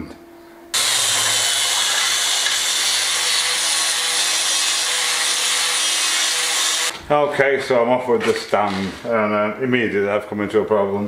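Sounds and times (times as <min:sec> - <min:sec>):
power tool rasping off paint: 0:00.8 - 0:06.9, 0:08.4 - 0:09.1.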